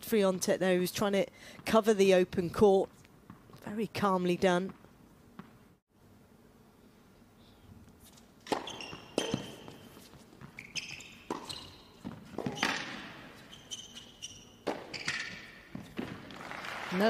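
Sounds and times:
sneakers squeaking on court: 0:08.1 - 0:16.4
racket striking tennis ball: 0:08.4 - 0:16.5.

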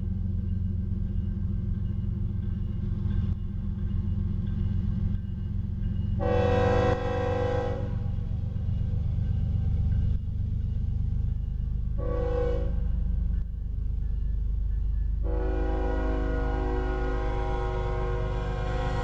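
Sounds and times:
locomotive air horn blast: 0:06.2 - 0:08.0, 0:12.0 - 0:12.8, 0:15.2 - 0:19.0.

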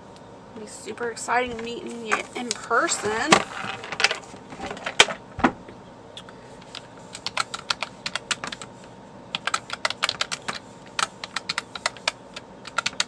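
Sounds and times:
typing on keyboard: 0:06.6 - 0:08.7, 0:09.3 - 0:13.0.

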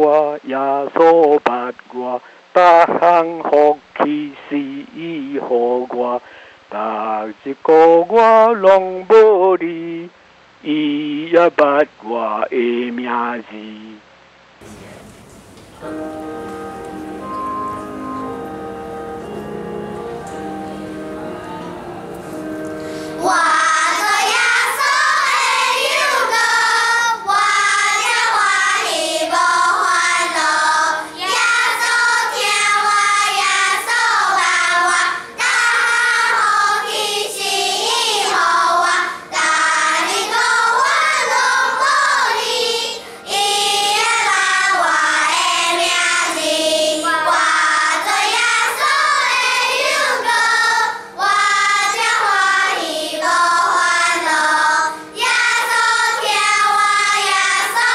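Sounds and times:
children's choir singing a hymn: 0:15.8 - 0:57.9.

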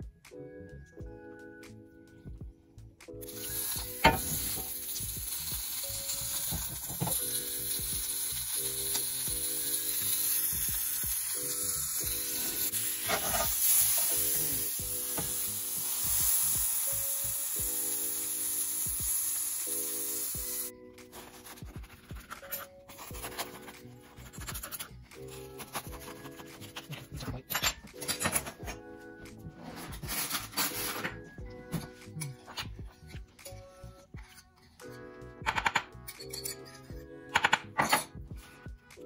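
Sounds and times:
sandwich sizzling on grill pan: 0:03.3 - 0:20.7.

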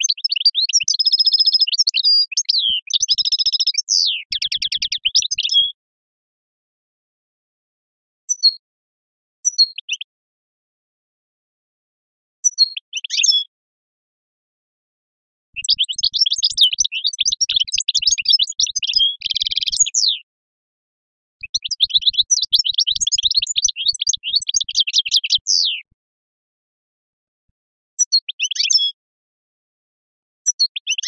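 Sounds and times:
songbird twittering chirps: 0:00.0 - 0:05.8, 0:08.3 - 0:08.6, 0:09.4 - 0:10.1, 0:12.4 - 0:13.5, 0:15.6 - 0:20.3, 0:21.4 - 0:25.9, 0:28.0 - 0:29.0, 0:30.5 - 0:31.0.

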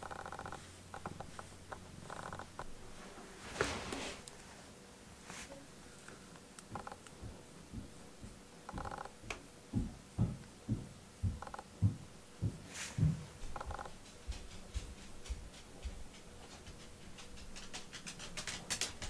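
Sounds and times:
soft low thumps: 0:06.7 - 0:16.1.

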